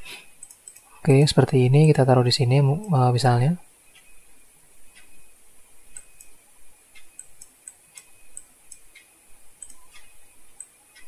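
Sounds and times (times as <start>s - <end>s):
computer mouse clicking: 0.4s - 0.9s, 5.9s - 6.4s, 7.0s - 11.0s.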